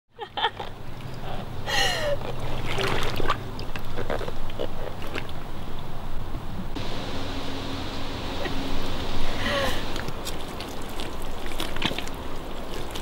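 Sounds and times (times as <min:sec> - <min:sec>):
water splashing around waders: 0:02.0 - 0:05.7, 0:08.2 - 0:13.0.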